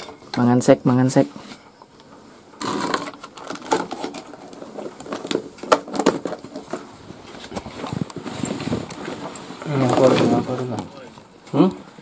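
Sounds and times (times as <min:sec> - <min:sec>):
plastic lids pulled off: 0:02.6 - 0:06.9
plastic tubs knocking on wooden floor: 0:02.6 - 0:06.9.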